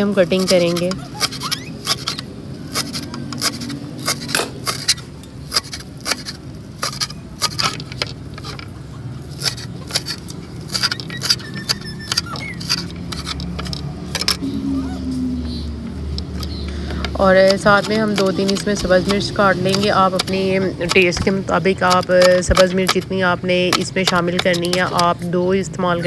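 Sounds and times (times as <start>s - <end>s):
low steady hum: 13.8s - 26.0s.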